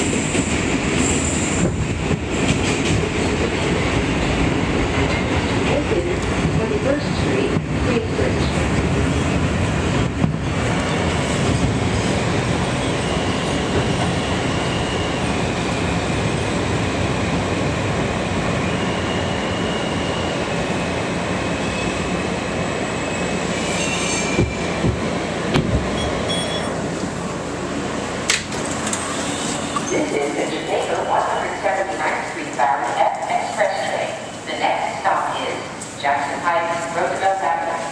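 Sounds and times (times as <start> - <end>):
subway train rumbling on rails: 0.0 - 37.9
high wheel squeals: 25.9 - 26.9.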